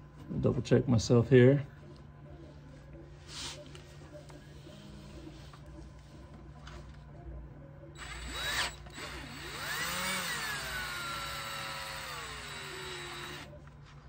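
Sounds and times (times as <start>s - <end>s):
cordless drill whine: 8.0s - 13.5s.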